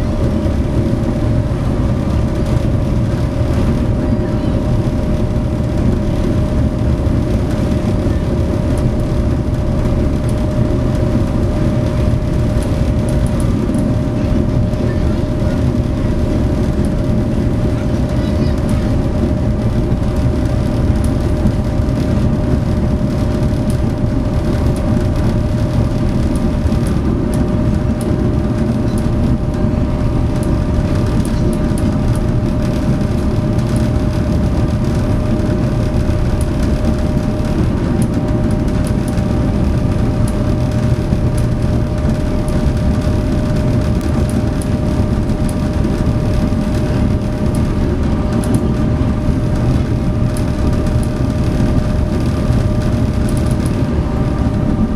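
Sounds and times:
ferry diesel engines rumbling: 0.0s - 54.9s.

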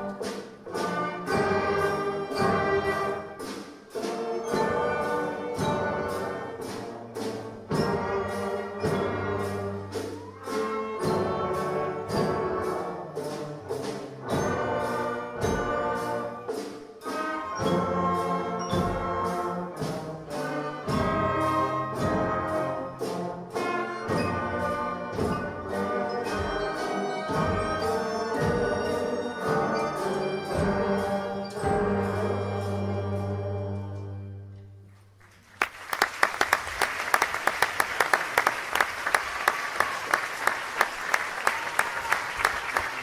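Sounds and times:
school orchestra playing: 0.0s - 34.9s
audience applause: 35.2s - 43.0s.

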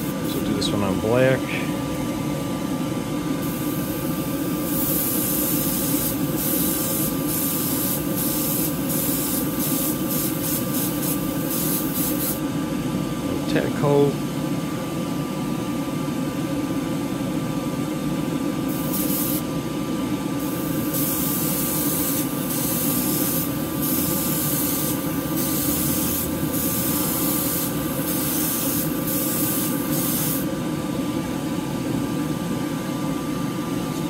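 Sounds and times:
exhaust fan humming: 0.0s - 34.0s
airbrush spraying bursts: 3.4s - 12.4s, 18.7s - 19.5s, 20.4s - 30.5s.

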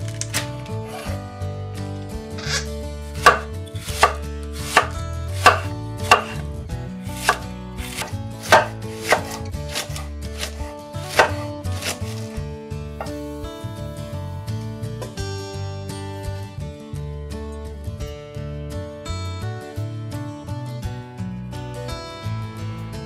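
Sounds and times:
knife cutting cabbage on board: 0.0s - 1.2s, 2.4s - 6.5s, 7.1s - 12.4s.

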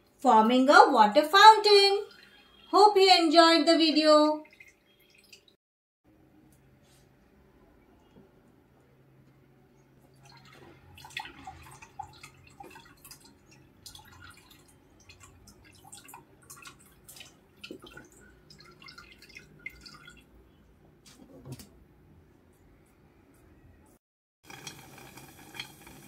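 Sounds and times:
water dripping into bowl: 4.4s - 5.6s, 10.1s - 20.3s.

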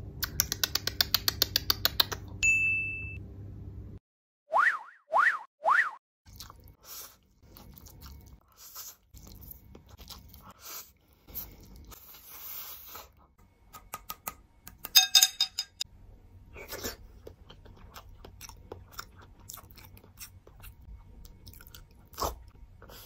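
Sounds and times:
wet chewing and slurping: 6.3s - 13.2s, 16.6s - 23.0s
sharp clicks with ringing tone: 14.8s - 15.8s.

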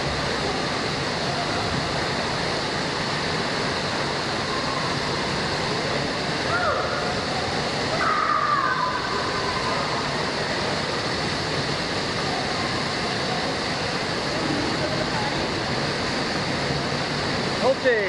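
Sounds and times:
running and splashing water: 0.0s - 18.0s
distant echoing voices: 0.2s - 17.6s.

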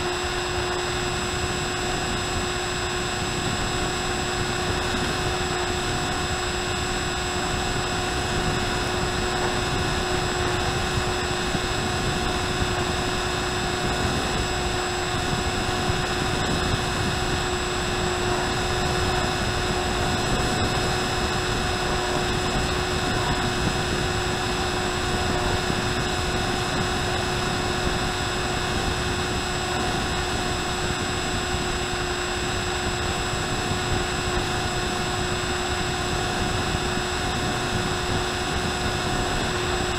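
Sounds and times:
electric motor and propeller whine: 0.0s - 39.9s
wind rush: 3.3s - 31.8s.

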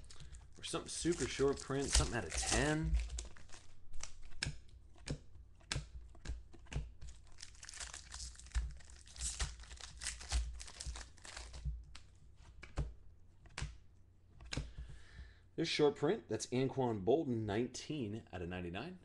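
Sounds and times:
plastic wrapper crinkling: 0.0s - 4.4s, 7.1s - 11.8s
trading cards flipped: 0.0s - 13.8s.

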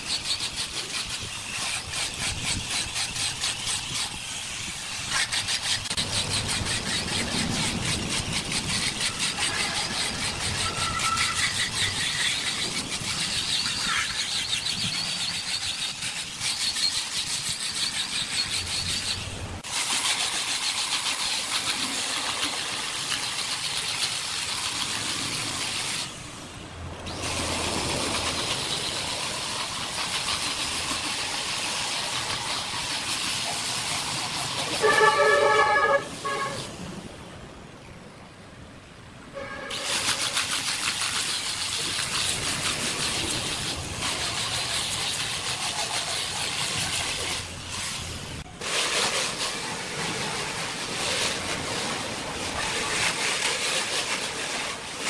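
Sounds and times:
angle grinder sanding wood: 0.0s - 26.2s, 27.0s - 36.4s, 39.7s - 55.0s
loud pitched squeal: 6.1s - 17.0s.

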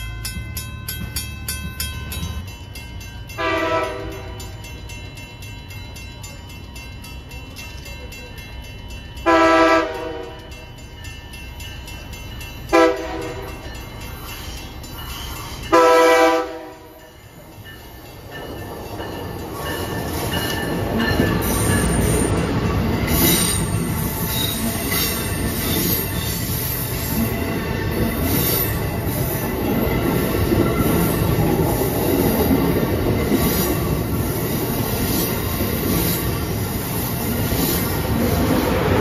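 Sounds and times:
train wheels rumbling on rails: 0.0s - 39.0s
train horn blasts: 3.4s - 4.5s, 9.3s - 10.4s, 12.7s - 13.5s, 15.7s - 17.0s
high wheel squeal: 14.1s - 15.7s, 23.1s - 29.4s.

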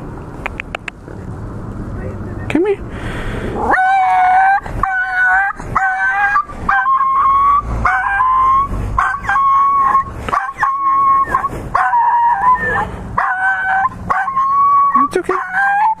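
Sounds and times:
dog yelping and whining: 3.6s - 16.0s.

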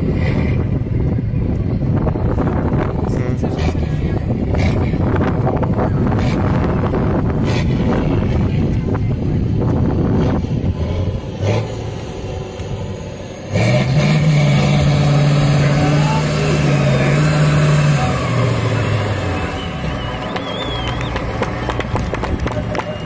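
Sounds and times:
truck diesel engine revving: 0.0s - 23.0s.

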